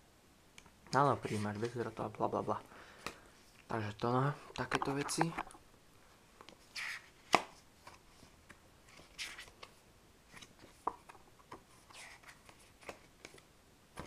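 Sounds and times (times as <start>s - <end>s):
paper pages turning: 8.8s - 13.4s.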